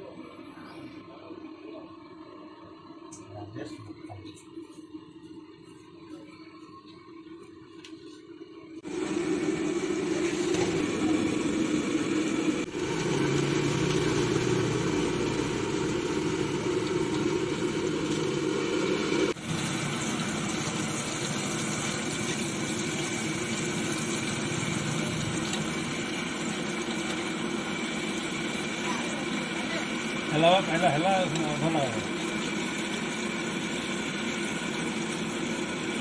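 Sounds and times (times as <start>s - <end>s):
food deep-frying in hot oil: 8.8s - 36.0s.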